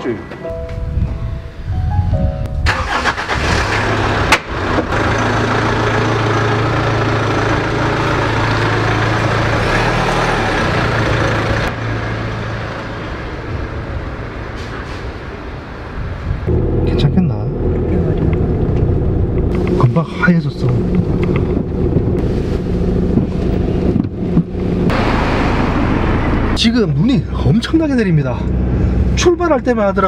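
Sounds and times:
car engine running: 3.4 - 11.8, 16.5 - 29.6.

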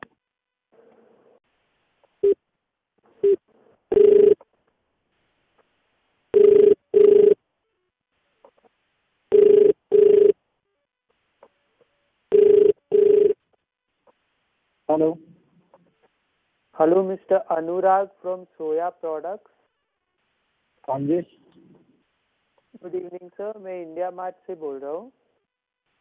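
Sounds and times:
phone ringback tone: 3.2 - 4.4, 6.4 - 7.4, 9.3 - 10.4, 12.3 - 13.4.

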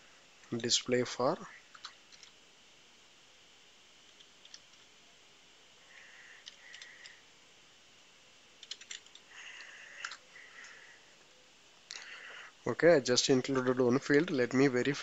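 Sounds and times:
low hiss: 0.0 - 15.0
keyboard typing: 1.7 - 2.3, 4.1 - 4.9, 6.5 - 7.2, 8.6 - 10.2.

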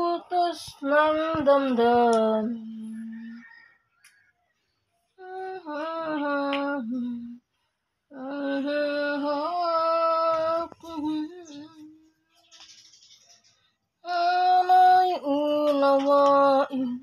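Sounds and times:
woman singing unaccompanied: 0.0 - 3.7, 5.2 - 7.5, 8.1 - 12.2, 14.0 - 17.0.

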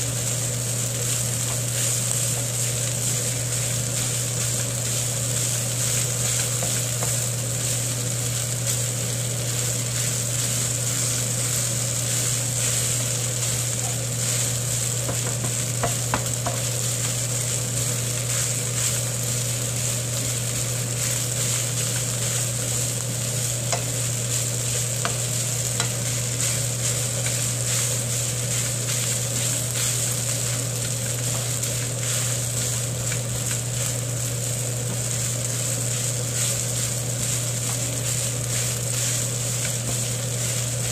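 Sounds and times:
rice sizzling in a frying pan: 0.0 - 40.9
spatula scraping a pan: 23.7 - 40.9.

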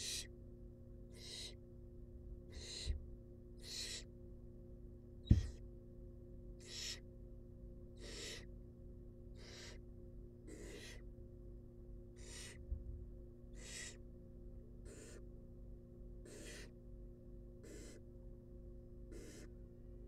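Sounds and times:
owl nestlings hissing begging calls: 0.0 - 0.3, 1.1 - 1.6, 2.5 - 3.0, 3.6 - 4.1, 6.6 - 7.0, 8.0 - 8.5, 9.4 - 9.8, 10.5 - 11.0, 12.2 - 12.6, 13.5 - 14.0, 14.8 - 15.2, 16.2 - 16.8, 17.6 - 18.0, 19.1 - 19.5
sharp thump: 5.3 - 5.6.

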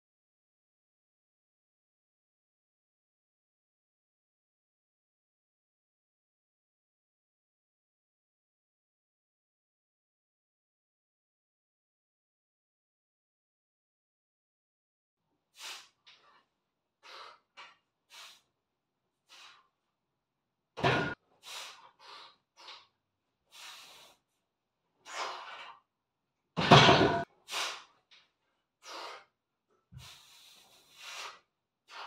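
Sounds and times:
man breathing sharply: 21.4 - 22.9, 23.5 - 24.2, 28.8 - 29.3, 30.0 - 32.0.

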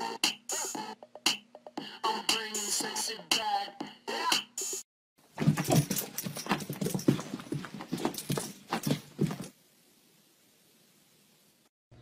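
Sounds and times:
dog paws scrabbling on hard floor: 5.2 - 9.6.

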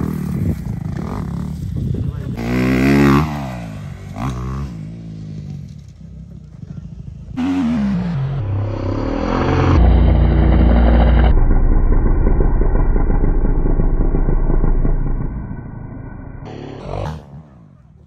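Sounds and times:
dirt bike engine revving: 0.0 - 5.9, 7.2 - 18.0.

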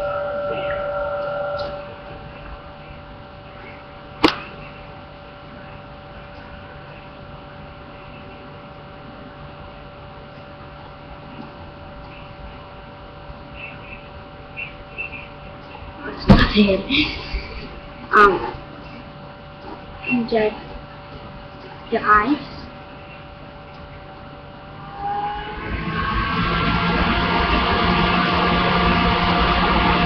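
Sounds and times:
hum of held tones: 0.0 - 30.0
sharp click: 4.2 - 4.5.

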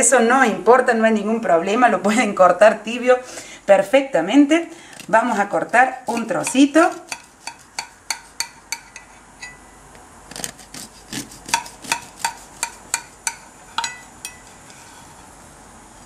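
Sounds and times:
knife sawing through cake: 5.2 - 7.9, 10.4 - 12.6.

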